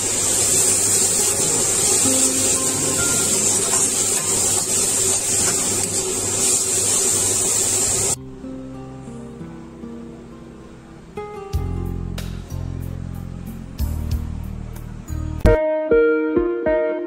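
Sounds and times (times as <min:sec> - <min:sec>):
vegetables sizzling in a wok: 0:00.0 - 0:08.2.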